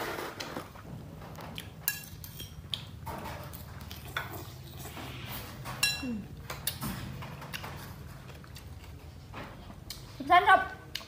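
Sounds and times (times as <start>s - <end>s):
spoon clinking on ceramic plate: 5.8s - 6.8s.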